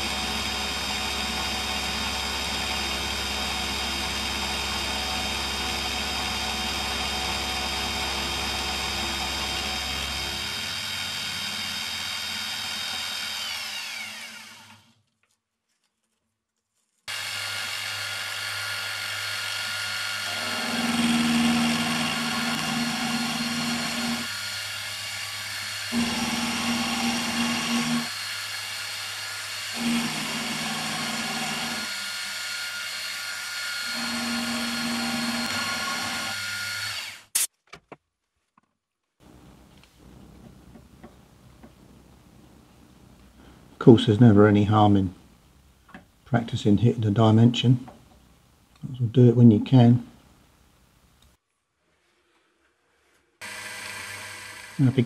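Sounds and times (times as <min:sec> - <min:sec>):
milling machine cutting steel: 0:17.1 - 0:37.3, 0:53.4 - 0:55.0.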